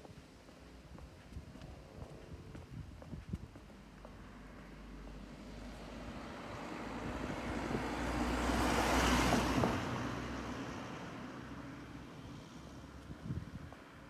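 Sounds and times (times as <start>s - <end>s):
car driving past: 4.4s - 12.4s.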